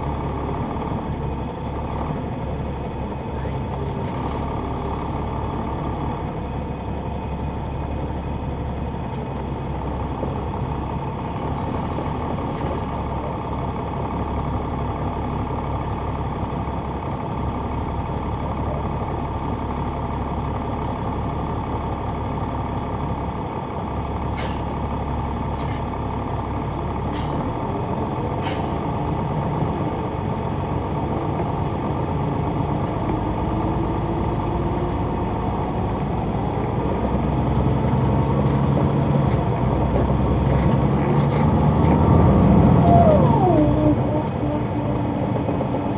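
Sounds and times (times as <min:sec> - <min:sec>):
bus diesel engine droning: 0:00.0 - 0:45.9
air brake hisses: 0:28.4 - 0:28.8.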